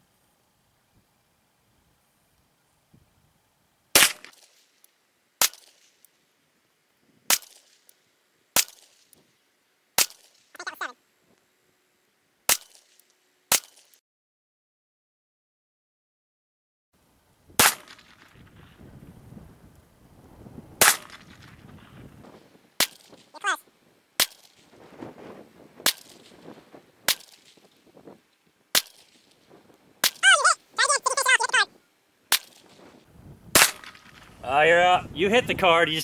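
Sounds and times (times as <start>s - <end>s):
pistol shots: 4.0s - 4.4s, 17.6s - 18.2s, 20.8s - 21.3s, 33.5s - 34.2s.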